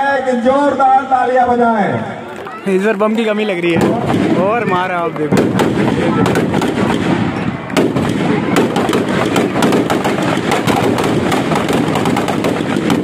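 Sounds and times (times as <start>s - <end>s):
firecrackers crackling: 2.2s - 13.0s
sharp firecracker bangs: 3.6s - 13.0s.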